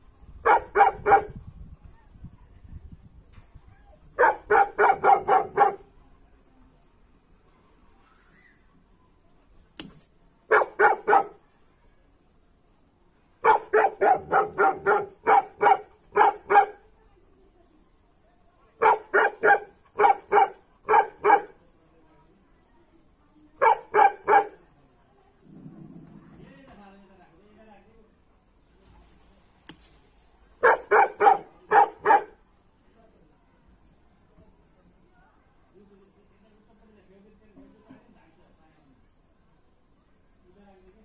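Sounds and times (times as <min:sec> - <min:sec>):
dog barking aggressively: 0:00.4 - 0:01.4, 0:04.2 - 0:05.9, 0:10.5 - 0:11.4, 0:13.4 - 0:16.8, 0:18.8 - 0:21.5, 0:23.6 - 0:24.6, 0:30.6 - 0:32.4.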